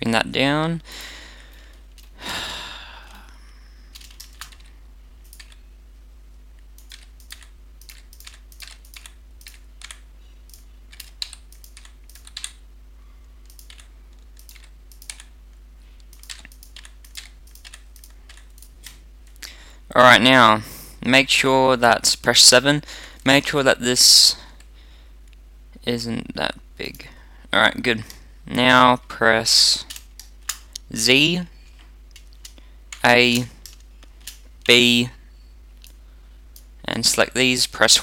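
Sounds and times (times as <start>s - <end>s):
faint steady hum: 0.0s - 38.0s
keyboard and mouse clicking: 3.9s - 5.6s, 6.8s - 12.6s, 13.4s - 15.3s, 16.0s - 19.0s.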